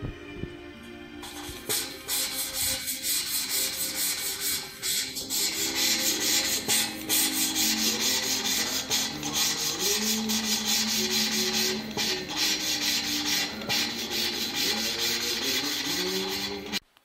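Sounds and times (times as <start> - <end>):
valve grinding against seat: 1.2 - 16.8.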